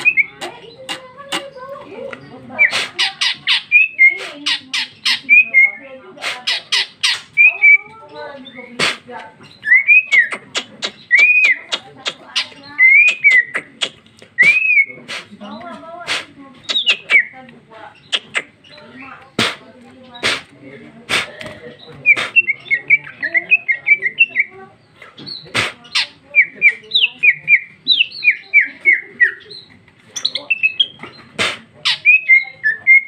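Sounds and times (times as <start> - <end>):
bird singing with clicking chips: 6.5 - 15.8, 16.6 - 20.5, 21.4 - 33.0.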